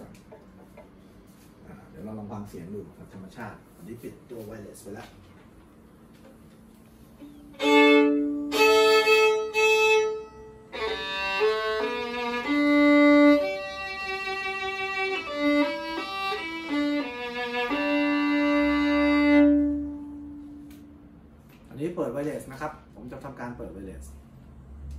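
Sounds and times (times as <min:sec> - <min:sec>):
violin playing: 0:07.3 - 0:21.0.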